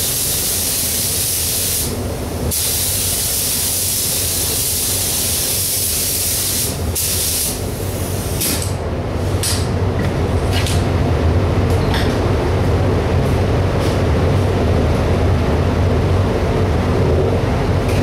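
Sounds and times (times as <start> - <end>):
spray gun hissing: 0.0 - 8.4
low machine hum: 0.0 - 18.0.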